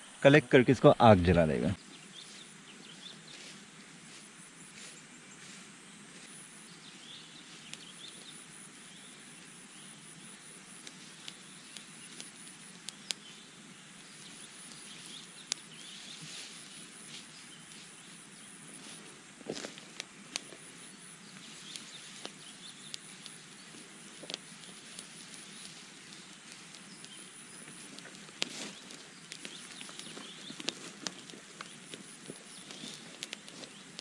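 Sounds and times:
sharp snaps or clicks: 0:21.7 - 0:25.7, 0:27.8 - 0:34.0.

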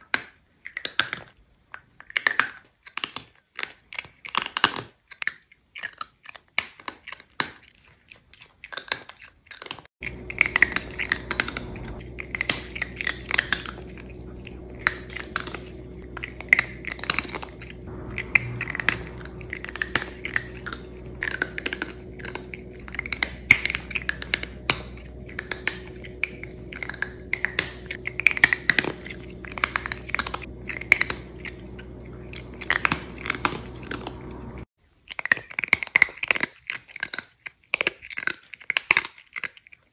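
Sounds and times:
cat crunching food: 0:00.4 - 0:39.9
steady low hum: 0:10.0 - 0:34.7.

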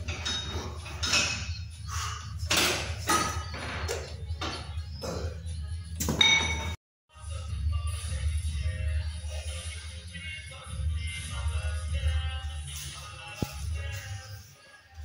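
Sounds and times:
metal dumbbells clinking: 0:00.0 - 0:01.6, 0:02.4 - 0:04.7, 0:06.0 - 0:06.8.

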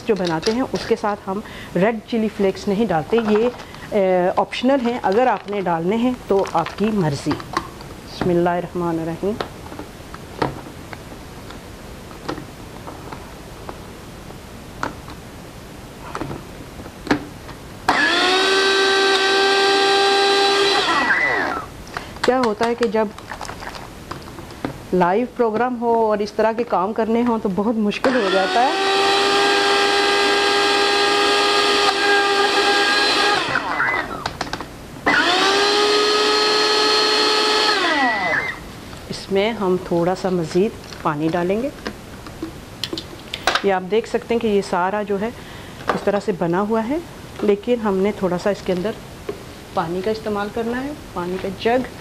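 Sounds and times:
blender motor whine: 0:17.9 - 0:21.7, 0:28.0 - 0:34.3, 0:35.0 - 0:38.6.

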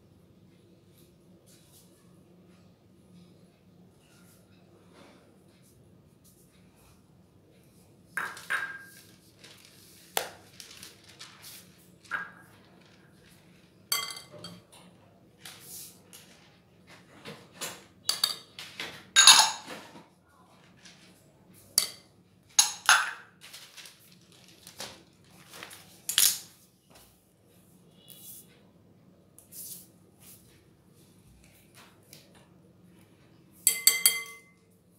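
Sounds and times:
glass bowls clinking: 0:13.9 - 0:14.7, 0:19.2 - 0:19.8, 0:22.6 - 0:23.2, 0:33.7 - 0:34.6.

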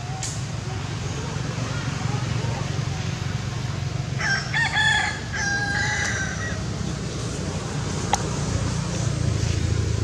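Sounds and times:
rooster crowing: 0:04.2 - 0:06.6.

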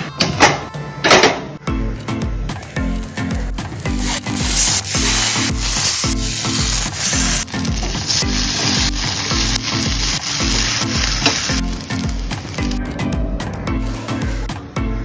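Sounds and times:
background music with steady beat: 0:00.0 - 0:15.0
slices sizzling in oil: 0:03.8 - 0:12.8.

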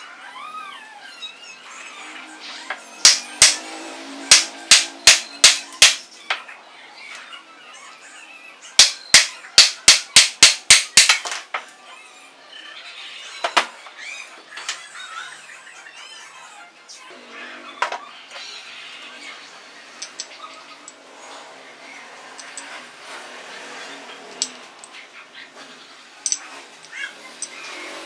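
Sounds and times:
hammer striking steel: 0:03.0 - 0:03.7, 0:04.3 - 0:06.1, 0:08.8 - 0:11.2.

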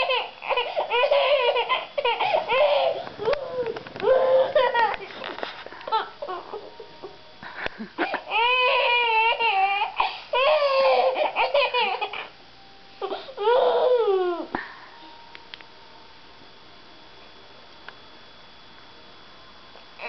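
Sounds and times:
baby laughing: 0:00.0 - 0:03.5, 0:04.1 - 0:05.2, 0:08.0 - 0:12.3.

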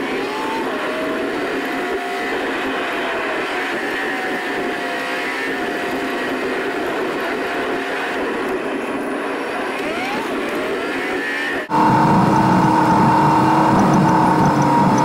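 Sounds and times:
engine and tyre drone: 0:00.0 - 0:15.0
faint whine: 0:02.4 - 0:15.0.

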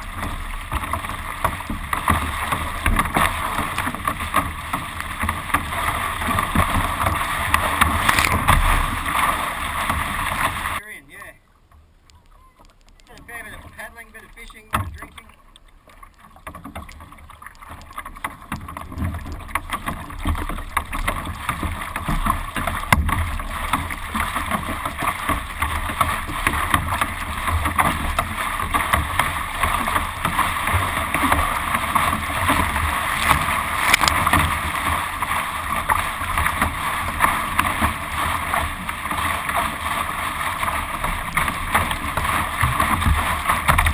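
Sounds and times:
water slapping against boat: 0:00.0 - 0:10.8, 0:12.6 - 0:43.9.

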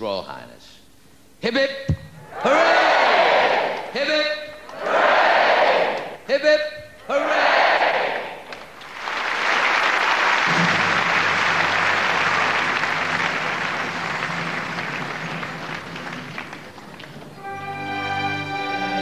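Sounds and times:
audience applauding: 0:08.4 - 0:18.0.

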